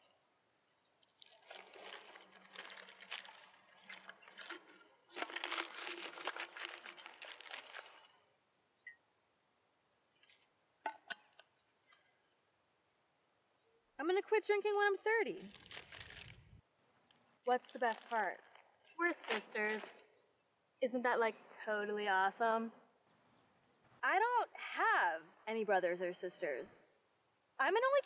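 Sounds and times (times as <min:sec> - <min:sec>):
paper bag crinkling: 0:01.0 - 0:08.2, 0:15.4 - 0:16.5, 0:17.6 - 0:20.0.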